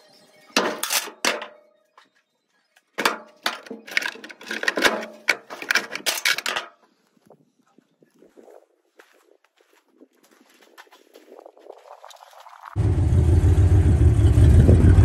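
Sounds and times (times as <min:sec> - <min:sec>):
metal tools clattering in toolbox: 0:00.6 - 0:01.6, 0:03.0 - 0:06.8.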